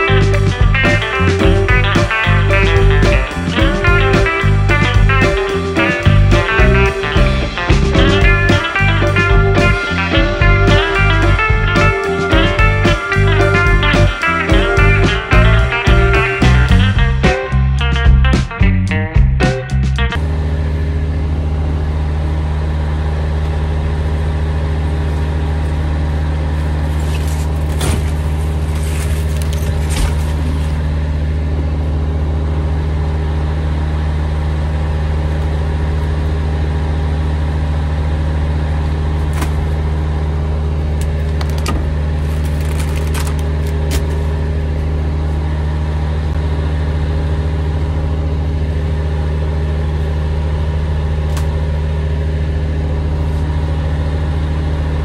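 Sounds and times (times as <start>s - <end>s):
diesel truck engine idling: 0.0s - 18.3s, 19.7s - 55.0s.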